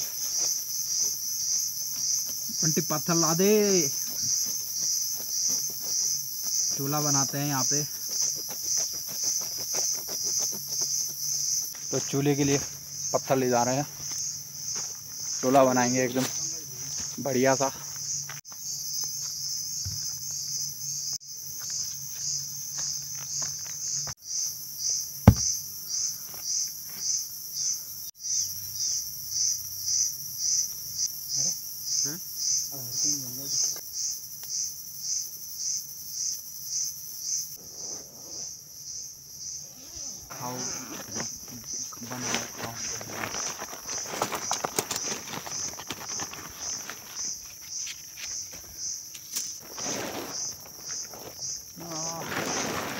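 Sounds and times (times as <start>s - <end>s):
insects buzzing: 0.0s - 52.9s
sharp knock: 25.3s - 25.5s.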